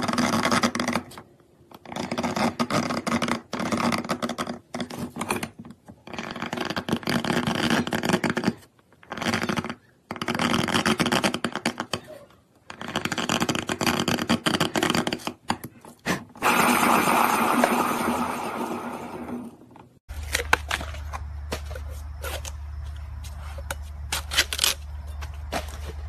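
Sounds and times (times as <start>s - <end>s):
engraving tool scraping stone: 0.0s - 15.8s.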